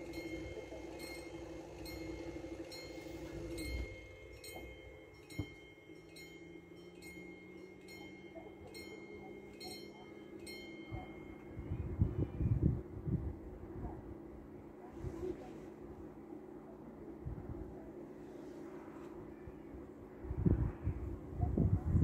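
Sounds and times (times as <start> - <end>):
level crossing warning bell: 0.0 - 11.9
steady hum: 0.0 - 22.0.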